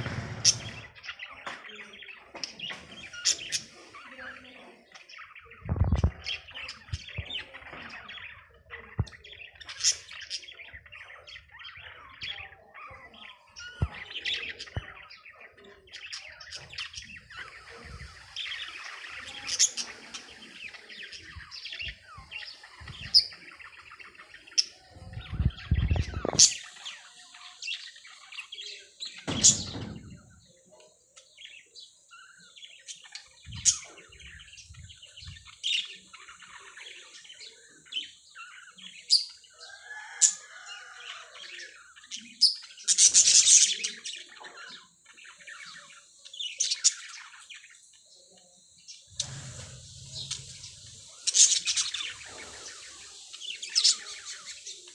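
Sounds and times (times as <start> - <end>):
budgerigars chirping and chattering: 0.0 - 54.9
low thumps: 29.3 - 30.5.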